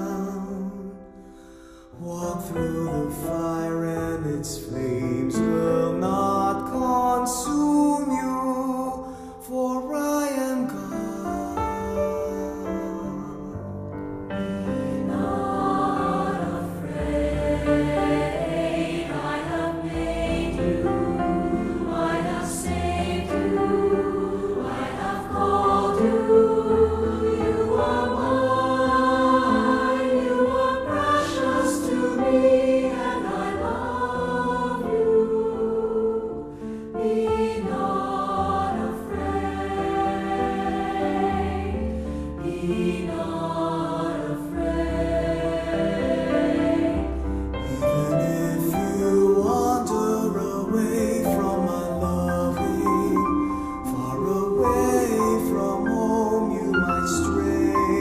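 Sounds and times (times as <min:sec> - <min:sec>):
choir singing with accompaniment: 0:14.6 - 0:58.0.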